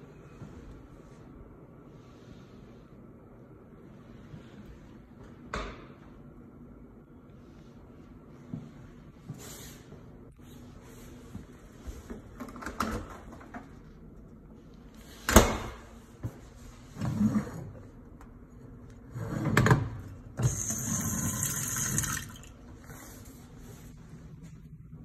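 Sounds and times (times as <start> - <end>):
water running into steel sink: 20.4 - 22.6.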